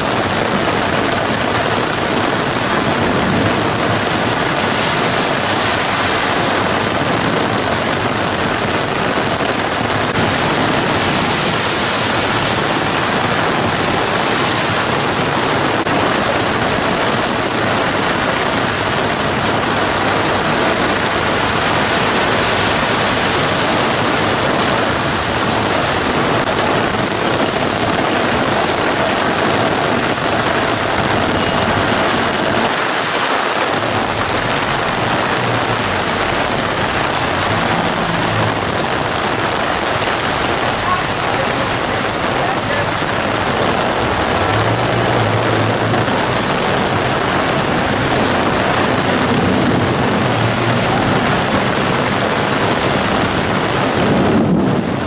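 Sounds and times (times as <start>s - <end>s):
car tyres splashing through water: 0.0s - 55.0s
heavy rain pouring: 0.0s - 55.0s.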